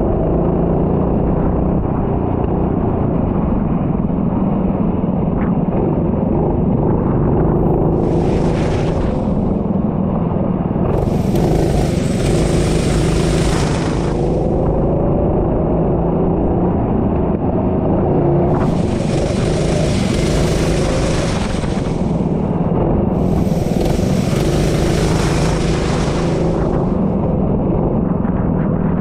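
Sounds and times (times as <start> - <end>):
vehicle engine running at speed: 0.0 - 29.0
high hiss: 7.9 - 9.6, 11.0 - 14.6, 18.6 - 22.4, 23.2 - 27.1.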